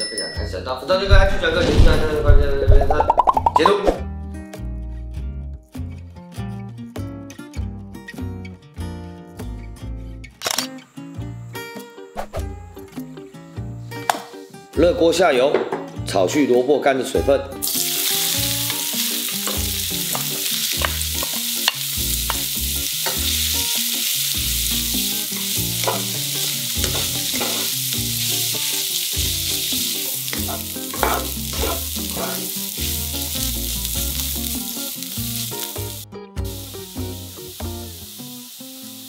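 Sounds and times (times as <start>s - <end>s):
radish sizzling in hot oil: 17.6s - 39.0s.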